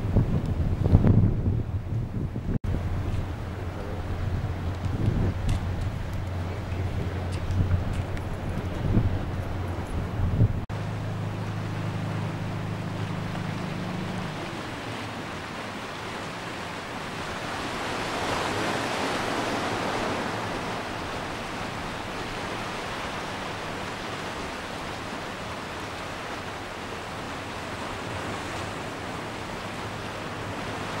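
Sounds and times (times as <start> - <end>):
sea surf washing: 0.0 - 31.0
low steady hum: 2.7 - 17.7.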